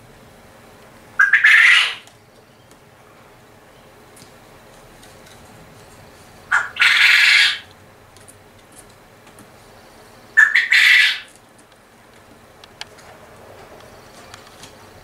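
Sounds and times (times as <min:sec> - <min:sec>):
quail calling: 0:01.2 - 0:02.1, 0:06.5 - 0:07.7, 0:10.4 - 0:11.3.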